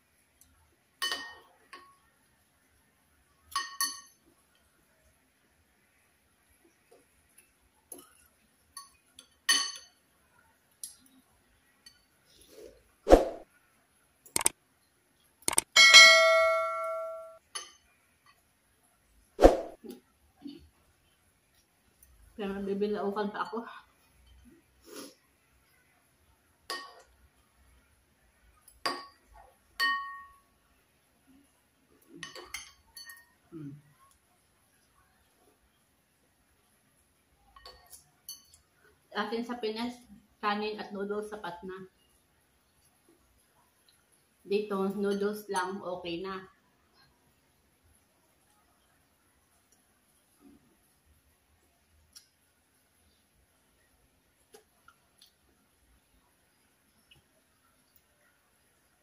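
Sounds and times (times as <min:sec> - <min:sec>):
cutlery clinking on ceramic bowl: 0:01.0 - 0:01.9, 0:03.5 - 0:04.2, 0:08.8 - 0:10.0, 0:15.8 - 0:18.4, 0:26.7 - 0:27.1, 0:29.8 - 0:30.4, 0:32.2 - 0:33.4, 0:37.6 - 0:38.6.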